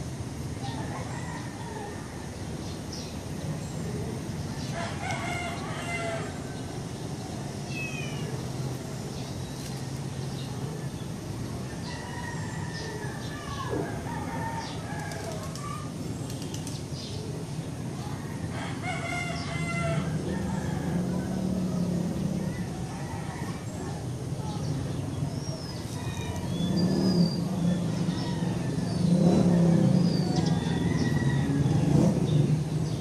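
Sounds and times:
roosters crowing: 0.0 - 2.8, 3.8 - 8.7, 11.4 - 16.0, 18.2 - 24.8, 25.6 - 33.0.

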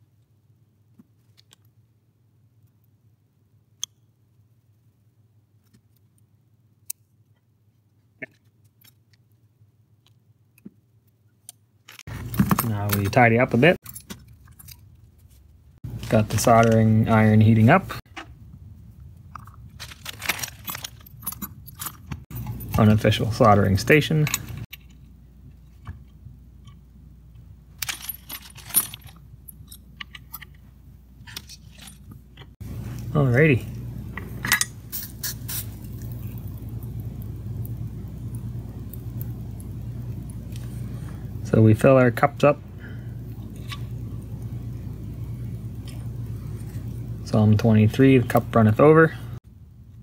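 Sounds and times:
low steady hum: 1.7 - 50.0
small metal connector parts clinking: 11.5 - 15.0, 19.3 - 26.9, 27.8 - 30.6.

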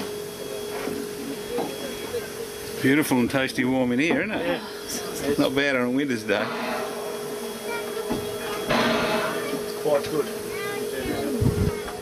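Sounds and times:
steam locomotive boiler hum and hiss: 0.0 - 12.0.

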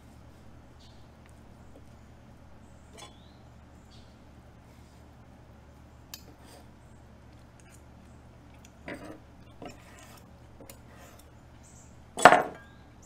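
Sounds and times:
steady low hum: 0.0 - 13.0
knife and fork scraping wooden board: 6.2 - 6.7, 8.9 - 11.3.

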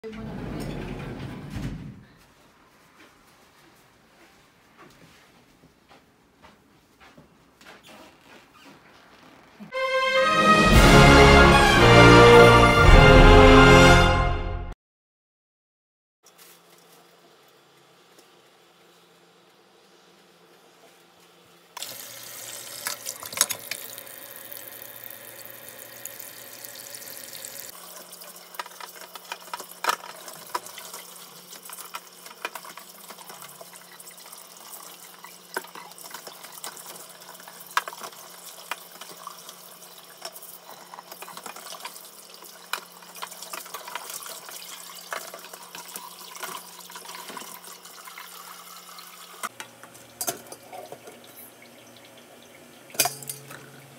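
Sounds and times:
tap water running into sink: 21.8 - 49.5.

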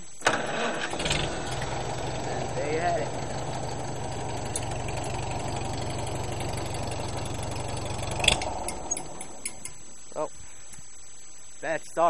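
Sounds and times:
tractor engine running: 0.0 - 10.0
engine cutting out with a knock: 1.0 - 9.4.

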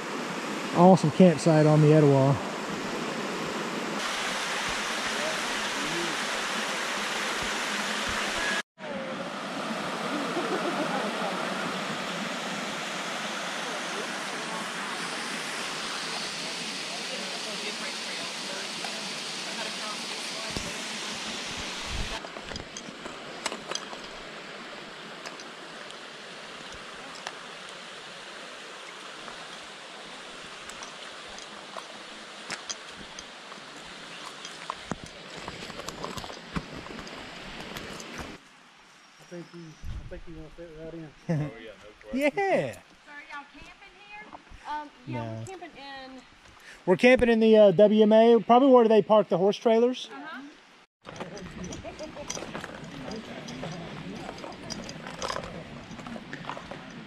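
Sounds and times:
waterfall rushing over rocks: 0.0 - 38.4
creek trickling: 0.1 - 8.6, 9.3 - 39.6, 50.4 - 57.0
faint voices: 51.1 - 57.0.

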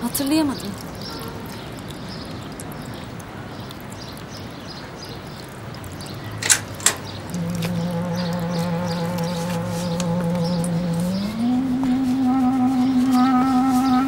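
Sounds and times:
outdoor garden ambience hiss: 0.0 - 14.0
sharp clicks: 6.4 - 8.5.

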